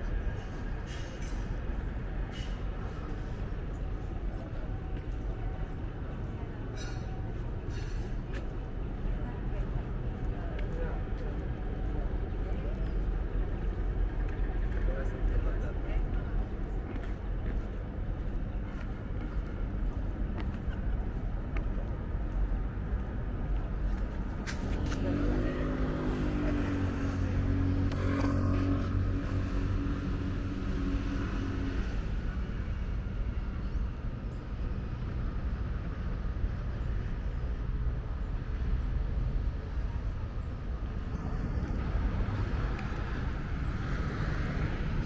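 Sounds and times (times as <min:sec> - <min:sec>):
city traffic rumble: 0:00.0 - 0:45.0
passing vehicle engine: 0:24.2 - 0:33.2, 0:40.8 - 0:45.0.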